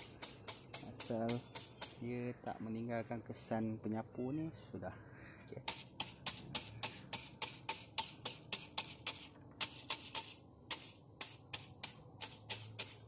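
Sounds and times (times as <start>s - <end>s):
high insect drone: 0.0s - 13.0s
crisp taps on wet cement: 0.2s - 2.0s.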